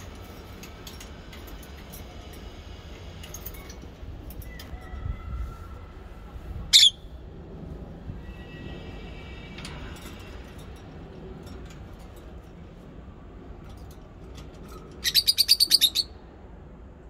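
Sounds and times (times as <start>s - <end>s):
bird shrill chirps: 6.7s - 7.1s, 15.0s - 16.2s.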